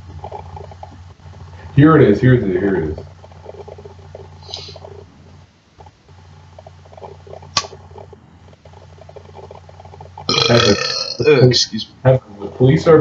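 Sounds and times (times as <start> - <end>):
faint hum with crackle: 0.0 - 13.0
man speaking: 10.3 - 13.0.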